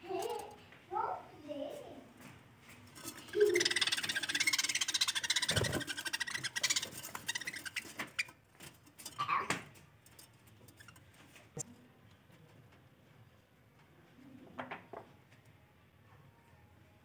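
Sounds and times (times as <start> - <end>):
budgerigars chattering: 3.4 - 7.8.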